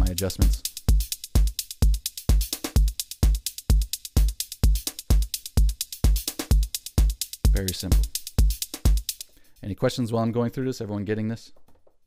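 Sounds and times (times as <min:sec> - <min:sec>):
electronic kick drum: 0:00.0 - 0:09.4
hi-hats ticking: 0:00.0 - 0:10.1.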